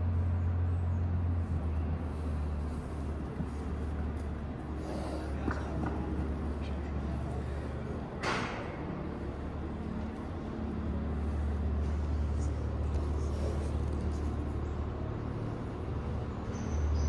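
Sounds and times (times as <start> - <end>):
engine idling: 0.0 - 17.0.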